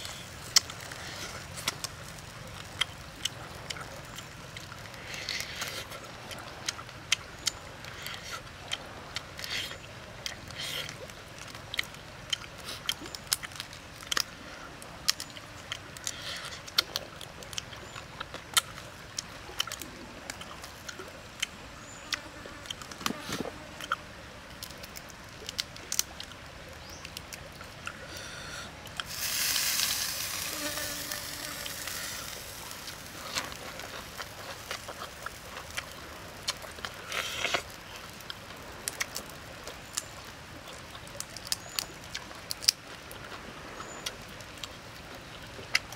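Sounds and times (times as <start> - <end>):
shrimp shells crackling: 29.0 - 38.4.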